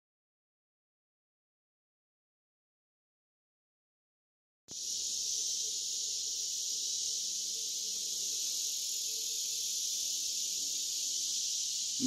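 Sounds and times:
high-pitched insect chorus: 0:04.7 - 0:12.0.

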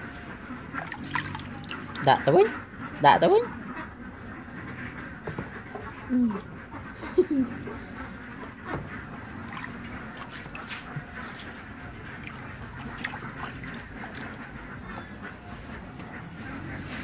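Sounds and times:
water sloshing in basin: 0:00.6 - 0:03.4, 0:08.6 - 0:17.0
small splashes: 0:00.7 - 0:02.2, 0:09.3 - 0:14.6.

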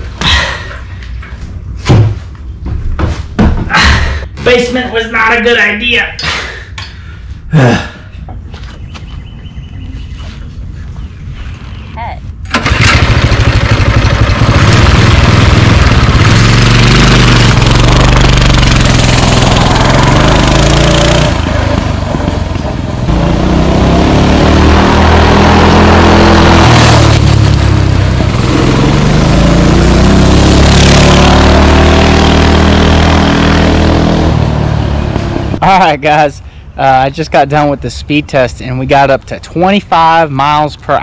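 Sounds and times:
mini bike engine at full throttle: 0:12.5 - 0:35.6.

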